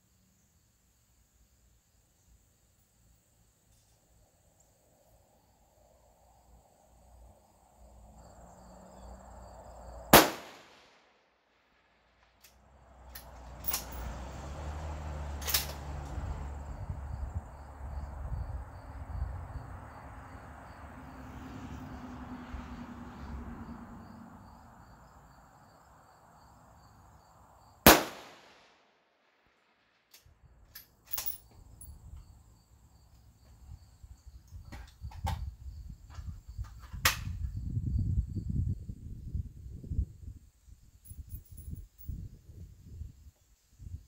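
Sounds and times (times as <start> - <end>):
rifle shot with echo: 10.1 - 11.1, 27.8 - 28.9.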